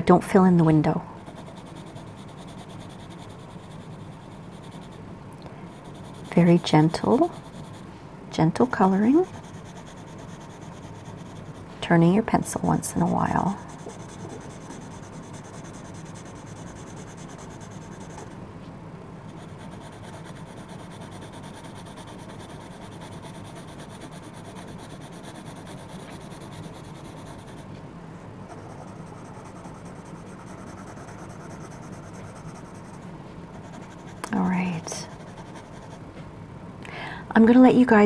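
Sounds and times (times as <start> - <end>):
electric fan humming: 0.0 - 38.0
pencil rubbing on paper: 5.7 - 7.9, 9.2 - 11.7, 13.0 - 18.3, 19.3 - 27.7, 28.5 - 33.0, 34.8 - 36.0.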